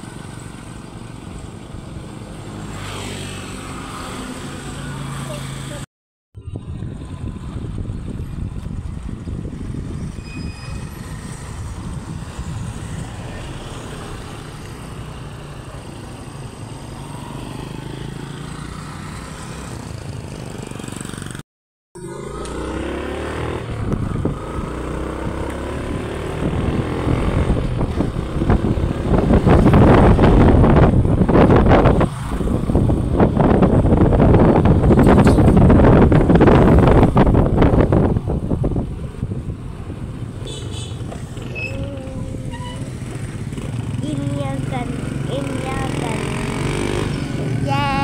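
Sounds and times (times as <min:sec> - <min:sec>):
wind buffeting on microphone: 0:06.4 - 0:13.4, 0:22.8 - 0:40.4
motorcycle engine: 0:22.0 - 0:48.0.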